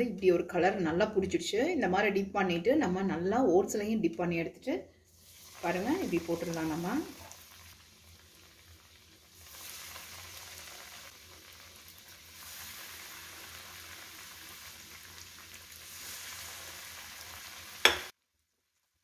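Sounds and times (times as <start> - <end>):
bread deep-frying in hot oil: 5.1 - 19.0.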